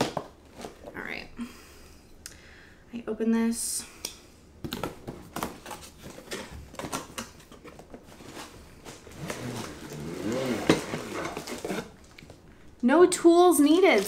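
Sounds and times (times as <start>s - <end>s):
cardboard rustling and scraping: 5.0s - 12.2s.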